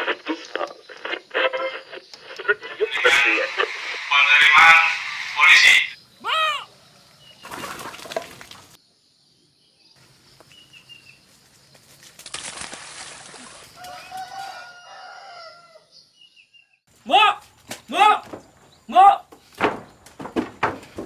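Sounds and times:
rooster crowing: 13.8 - 16.0.

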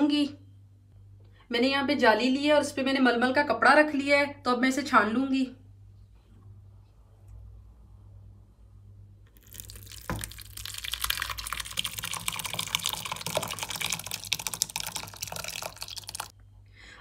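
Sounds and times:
whey splashing and draining: 9.4 - 16.3.

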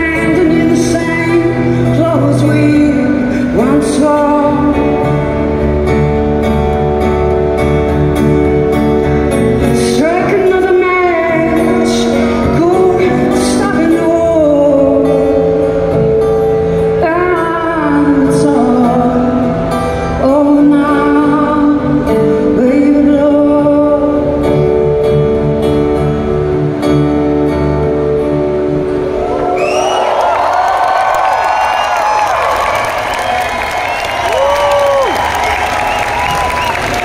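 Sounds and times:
woman singing: 0.0 - 5.4, 9.6 - 15.9, 17.0 - 24.7
strummed acoustic guitar: 0.0 - 29.2.

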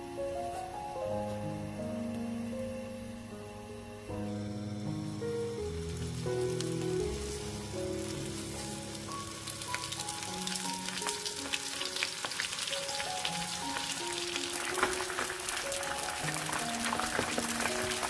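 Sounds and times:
background music: 0.0 - 18.0
fish sizzling in hot oil: 4.4 - 18.0.

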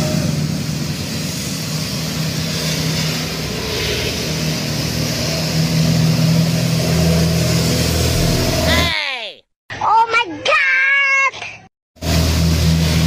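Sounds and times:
truck engine hum: 0.0 - 8.9, 12.0 - 13.0
motorbike and car engines passing: 2.0 - 8.9.

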